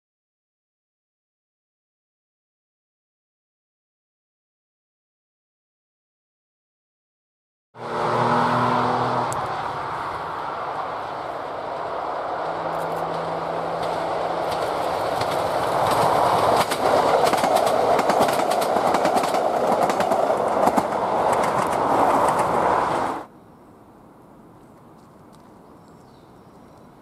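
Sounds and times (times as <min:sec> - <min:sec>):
diesel train engine: 0:07.8 - 0:23.3
train wheels clicking on rail joints: 0:11.3 - 0:23.1.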